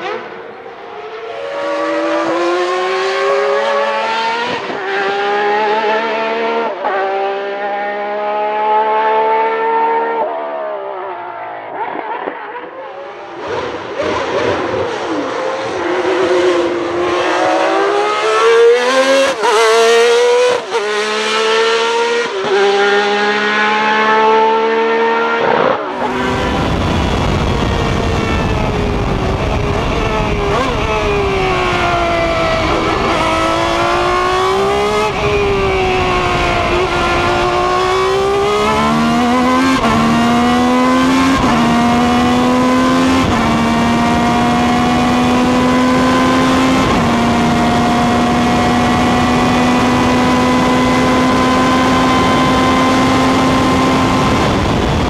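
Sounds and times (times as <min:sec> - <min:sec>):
race car engine at full throttle: 0:00.0 - 0:55.0
wind and road rumble: 0:13.2 - 0:55.0.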